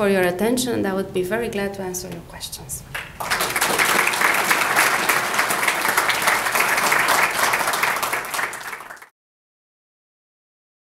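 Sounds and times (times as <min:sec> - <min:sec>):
audience applauding: 0:03.0 - 0:09.1.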